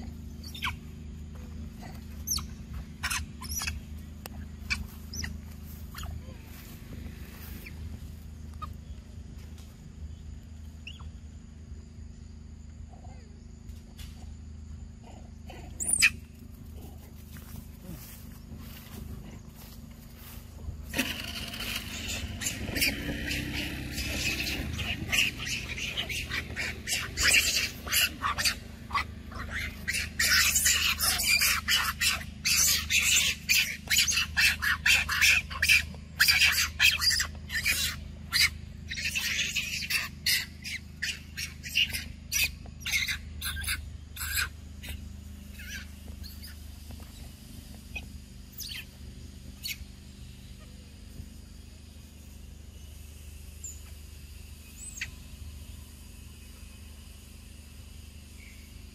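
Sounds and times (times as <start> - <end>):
monkey screaming: 0.3 - 0.8, 1.5 - 3.9, 4.6 - 6.6, 15.6 - 16.3, 20.9 - 46.6, 47.9 - 49.0, 49.6 - 49.9.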